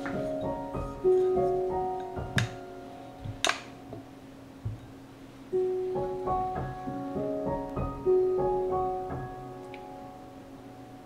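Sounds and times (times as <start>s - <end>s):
slow piano melody: 0.0s - 11.0s
soft knock: 3.2s - 4.9s.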